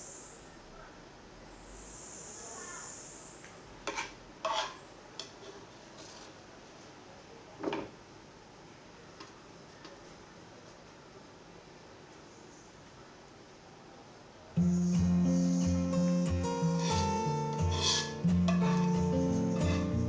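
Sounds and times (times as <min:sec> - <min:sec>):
soft high hiss: 0:00.0 - 0:05.2, 0:08.0 - 0:20.0
spoon clinking against dishes: 0:16.8 - 0:20.0.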